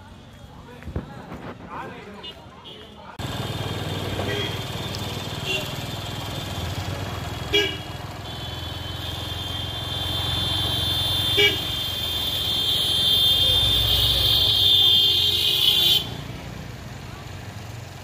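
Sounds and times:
vehicle engines running: 0:00.0 - 0:18.0
car horn toots: 0:07.5 - 0:16.2.

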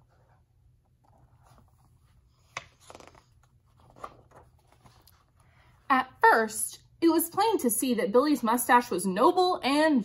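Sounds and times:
book pages rustling: 0:00.0 - 0:05.8.

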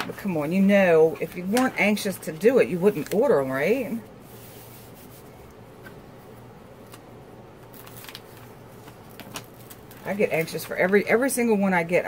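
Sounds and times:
canvas and paper rustling: 0:07.6 - 0:11.5.

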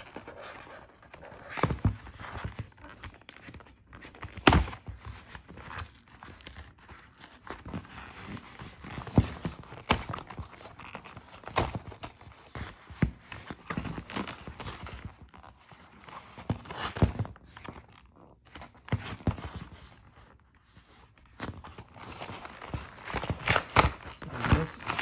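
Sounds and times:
cardboard packaging taps and rustles: 0:00.0 - 0:17.9, 0:21.2 - 0:25.0.

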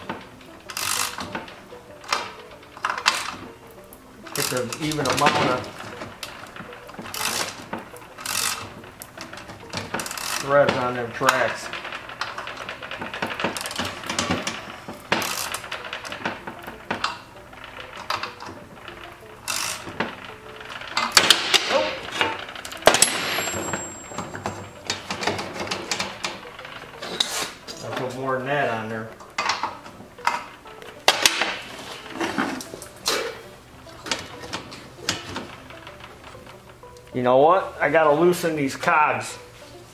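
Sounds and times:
metal clanks and knocks: 0:00.0 - 0:37.1
wrench clicking on metal: 0:00.6 - 0:01.4, 0:07.1 - 0:07.6, 0:08.2 - 0:09.2, 0:10.0 - 0:10.5, 0:15.2 - 0:16.1, 0:19.4 - 0:20.0
metal clank: 0:19.6 - 0:28.1.

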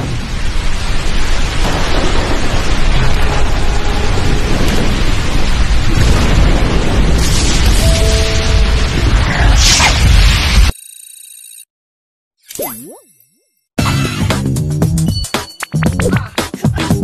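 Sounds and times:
rumbling cinematic music: 0:00.0 - 0:10.5.

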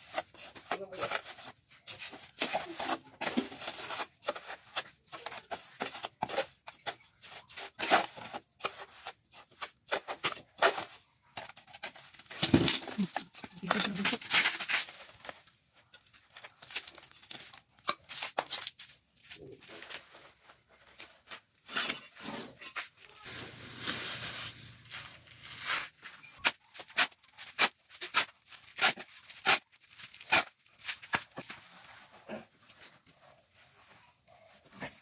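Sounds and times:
shovel scraping soil and concrete: 0:00.0 - 0:32.8.

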